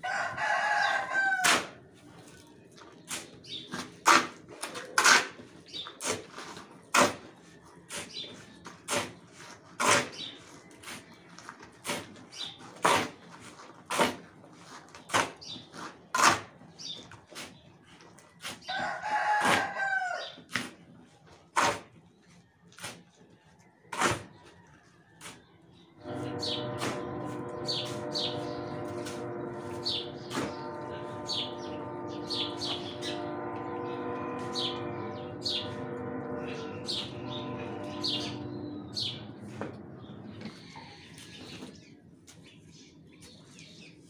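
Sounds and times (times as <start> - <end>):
rooster crowing: 0.0 - 1.8, 18.7 - 20.4
shovel scraping cement mix: 3.0 - 16.5, 21.5 - 21.9, 22.8 - 23.2, 23.9 - 24.6, 25.2 - 25.4, 26.0 - 28.2
steady ringing tones: 26.0 - 40.6.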